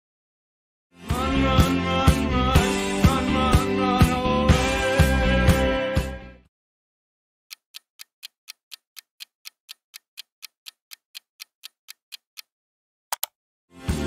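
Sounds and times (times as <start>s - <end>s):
music: 0.9s - 6.5s, 13.7s - 14.0s
clock ticking sound effect: 7.5s - 12.5s.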